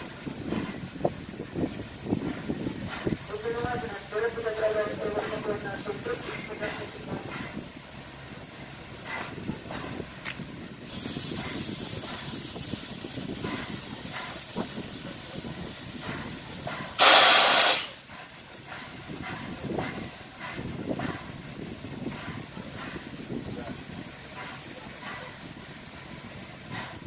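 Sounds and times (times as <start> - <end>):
steam locomotive hissing: 0.0 - 27.0
loud steam blast: 10.7 - 27.0.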